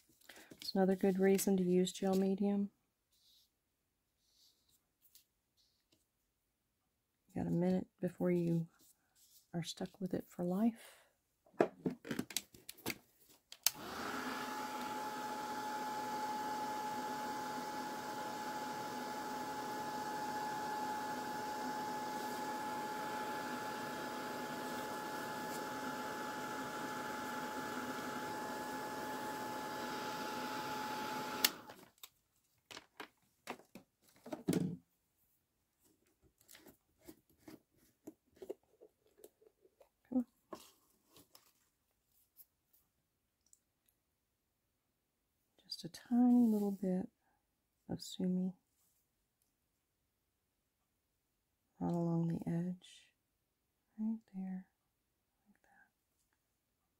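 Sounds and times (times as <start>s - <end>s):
heat tool fan whirring: 13.7s - 31.8s.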